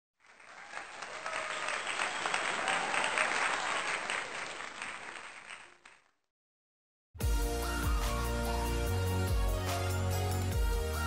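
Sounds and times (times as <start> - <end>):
applause: 0.2 - 6.2.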